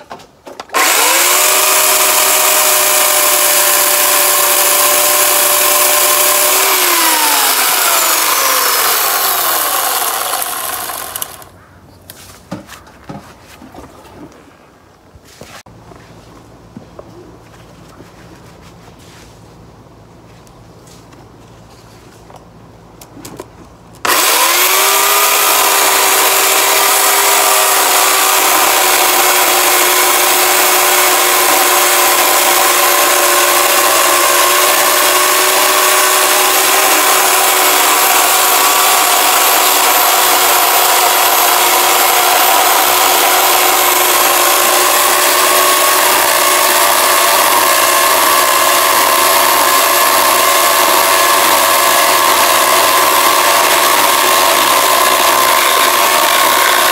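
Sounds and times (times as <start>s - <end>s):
electric chainsaw whining: 0.7s - 11.6s, 24.0s - 56.9s.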